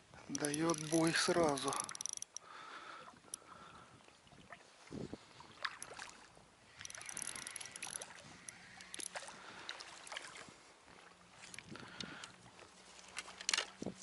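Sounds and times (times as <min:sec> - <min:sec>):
water splashing from fish: 0:04.1 - 0:06.4, 0:07.8 - 0:10.5.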